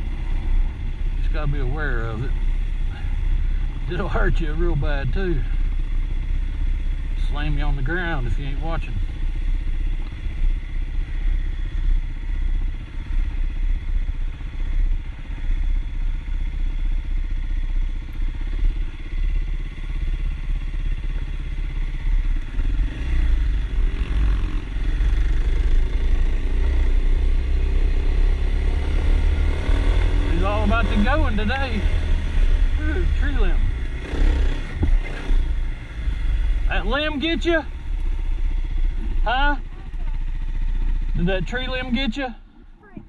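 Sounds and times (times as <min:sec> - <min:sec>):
dirt bike engine revving: 0:21.0 - 0:42.2.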